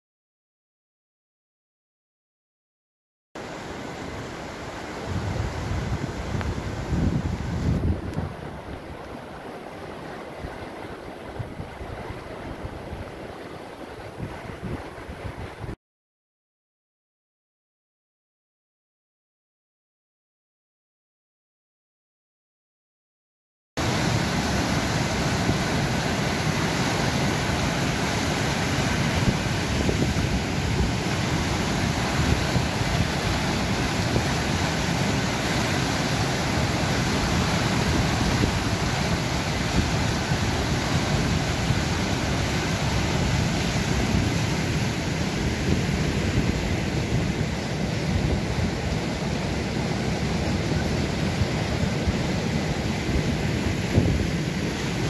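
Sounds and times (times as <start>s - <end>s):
water rushing over weir: 3.4s - 15.8s, 23.8s - 55.0s.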